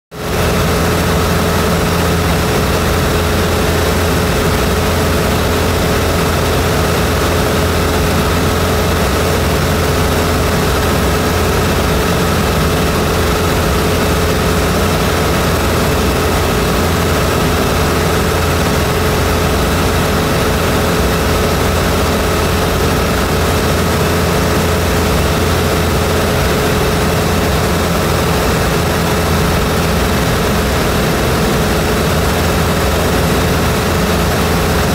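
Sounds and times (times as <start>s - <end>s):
aircraft engine and propeller drone: 0.2s - 34.9s.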